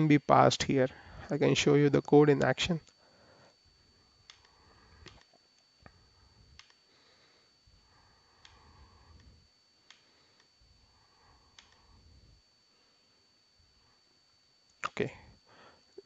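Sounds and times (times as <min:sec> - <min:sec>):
background hiss: 0:00.0 - 0:16.0
thin high-pitched whine: 0:00.0 - 0:16.0
faint computer mouse clicks: 0:06.6 - 0:06.8, 0:11.5 - 0:11.8.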